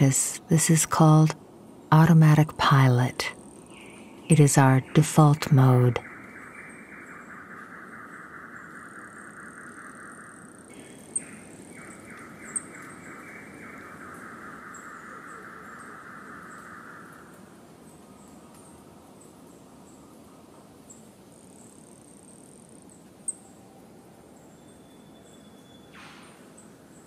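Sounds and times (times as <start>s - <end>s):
insect pulsing trill: 3.4s - 17.3s.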